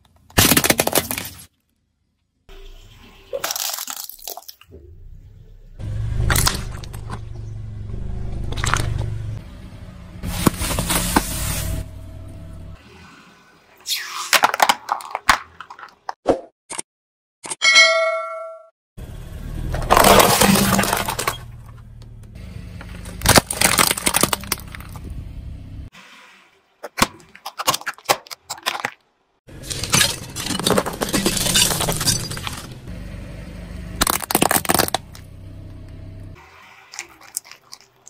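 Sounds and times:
plastic crunching under car tyre: 0.2 - 1.6, 10.2 - 11.8, 19.8 - 21.8, 22.9 - 25.1, 34.0 - 35.3, 36.4 - 38.0.

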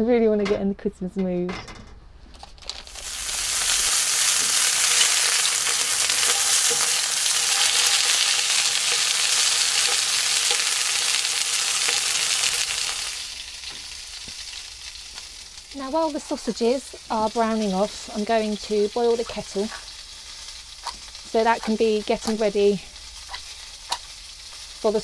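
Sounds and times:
sausages sizzling in a frying pan: 2.8 - 25.0.

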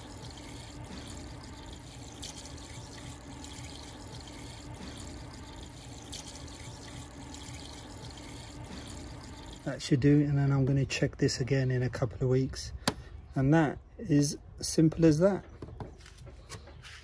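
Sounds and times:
liquid pouring and splashing: 0.0 - 9.8.

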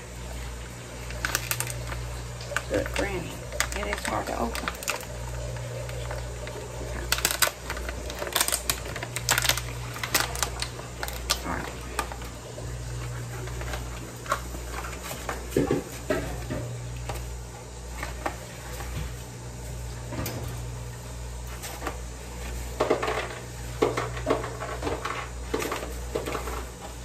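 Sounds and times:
steady low hum: 0.0 - 27.0
plastic bag rustling: 0.9 - 16.1.

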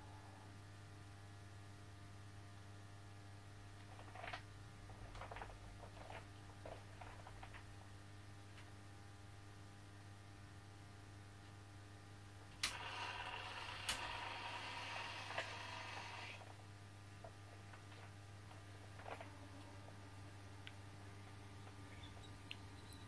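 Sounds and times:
model railway electrical hum: 5.2 - 23.0
sharp clicks: 12.6 - 12.8.

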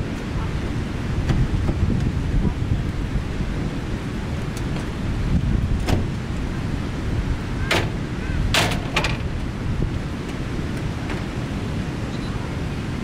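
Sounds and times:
wind rumble on microphone: 0.0 - 13.0
metal ramp clunking on pavement: 7.6 - 9.5.

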